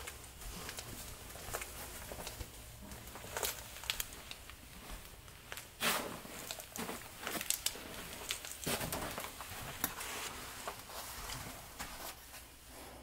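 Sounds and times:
footsteps on quilted duvets: 0.0s - 12.6s
footsteps on carpet: 8.7s - 12.4s.

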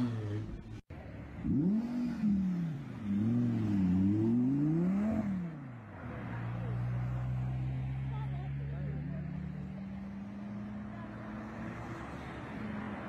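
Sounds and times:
sports car engine revving: 1.4s - 5.7s.

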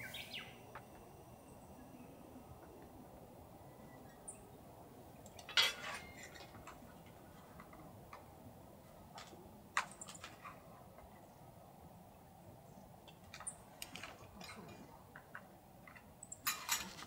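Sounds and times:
tableware clinking: 5.5s - 6.5s, 16.4s - 17.0s
tableware rattling: 5.5s - 6.6s, 16.4s - 17.0s.

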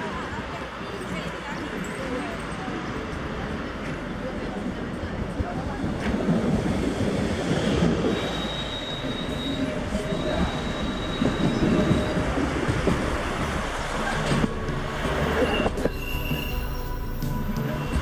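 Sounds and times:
train rumble and clatter: 0.0s - 18.0s
high wheel squeal: 8.0s - 12.4s, 15.2s - 18.0s.

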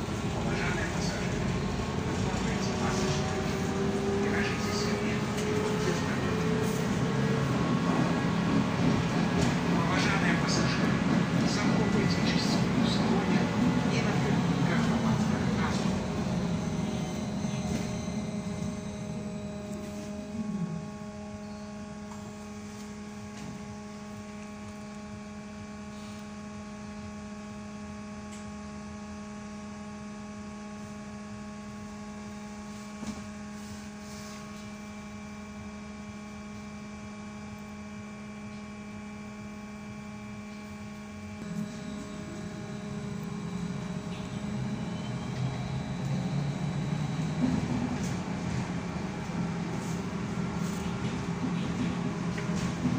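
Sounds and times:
trolleybus drive whine: 0.0s - 27.4s, 37.6s - 52.9s
trolleybus electric hum: 0.0s - 52.9s.

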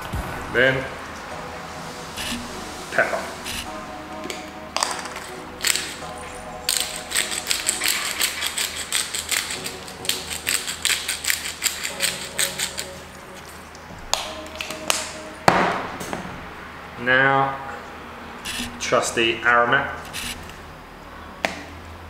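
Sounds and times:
pepper grinder ratcheting clicks: 6.7s - 13.0s.

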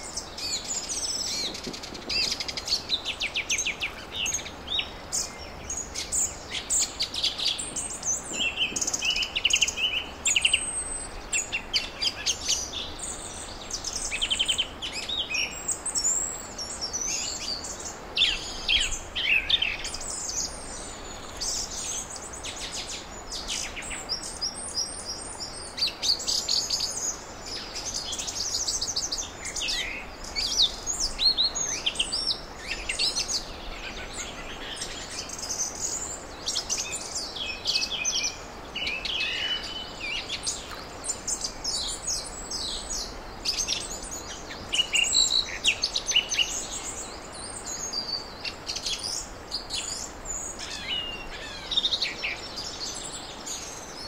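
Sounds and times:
outdoor background noise: 0.0s - 54.0s.

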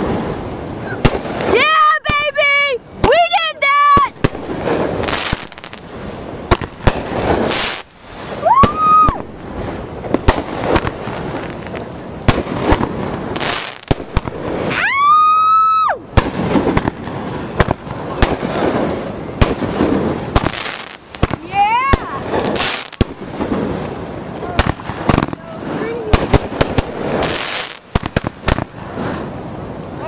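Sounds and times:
firework bangs: 0.0s - 29.6s
firework crackling: 0.0s - 30.0s
firework whistles: 6.5s - 11.4s, 17.6s - 23.7s, 24.6s - 29.3s.

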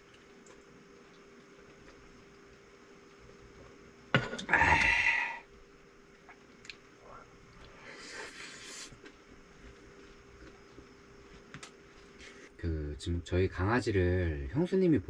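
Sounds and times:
breathy exhale: 4.5s - 5.5s.

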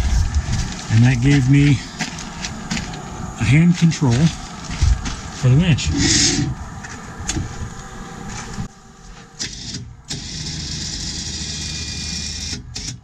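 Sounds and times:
electric winch running: 1.6s - 13.0s.

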